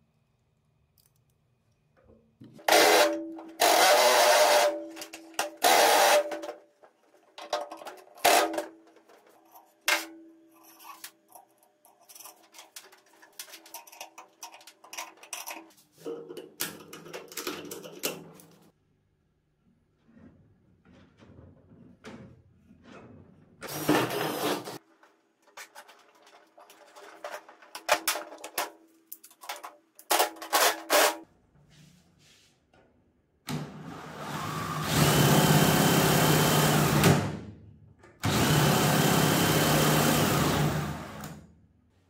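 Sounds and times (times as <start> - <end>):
cordless drill whining: 2.7 - 4.8, 34.0 - 37.1, 38.2 - 41.4.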